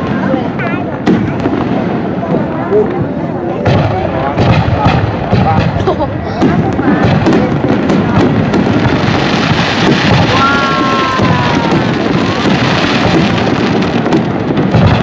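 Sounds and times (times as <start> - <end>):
fireworks booming: 0.0 - 15.0
fireworks crackling and sputtering: 0.0 - 15.0
firework whistling: 6.6 - 15.0.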